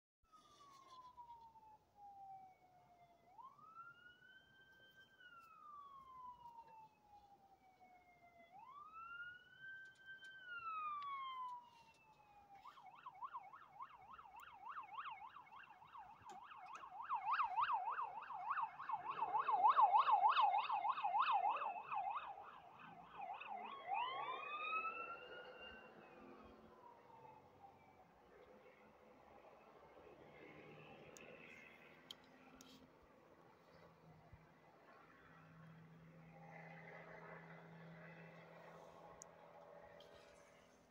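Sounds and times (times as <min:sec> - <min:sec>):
electronic siren wailing and yelping: 0:02.2 - 0:27.8.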